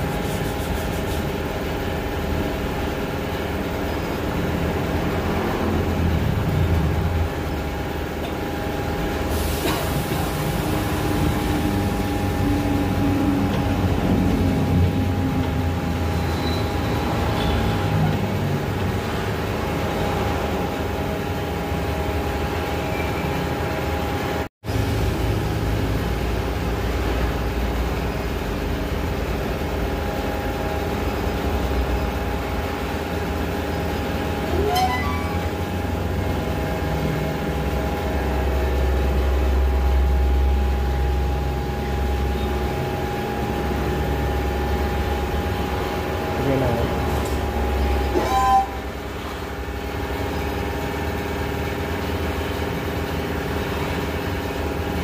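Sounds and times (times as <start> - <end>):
short rising squeak: 16.0 - 17.9, 34.4 - 36.0, 47.9 - 49.0
machinery droning: 30.0 - 50.4.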